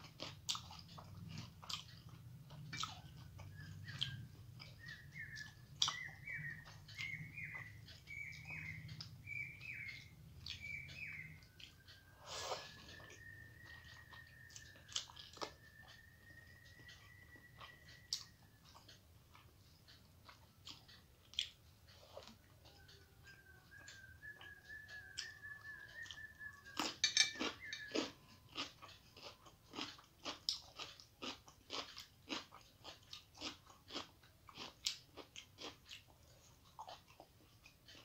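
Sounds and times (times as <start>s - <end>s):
chewing: 0.0s - 38.0s
thin whistle-like tone: 10.8s - 18.6s, 22.7s - 28.0s.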